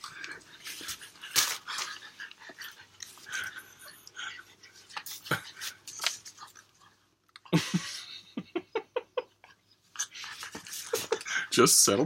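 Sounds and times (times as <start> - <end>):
man chuckling: 7.4 - 11.6.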